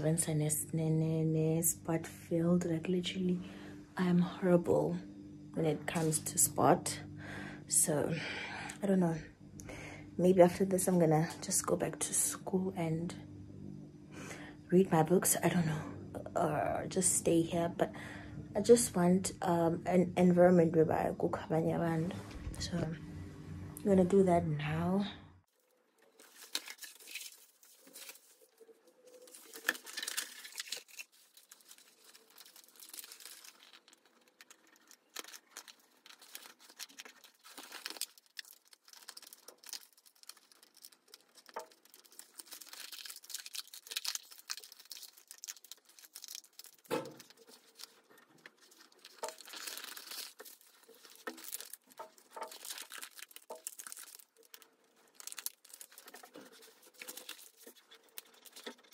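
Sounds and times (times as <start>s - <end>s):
paper crackling and crinkling: 25.5s - 58.9s.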